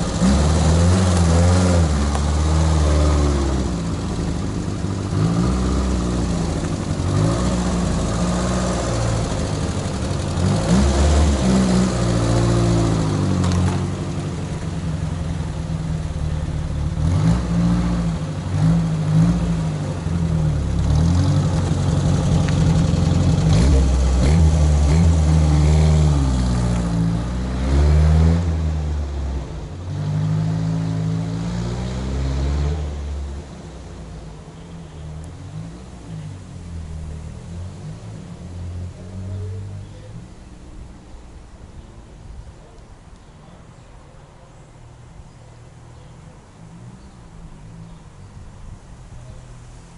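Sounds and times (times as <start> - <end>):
car engine revving and accelerating: 0.0 - 33.7.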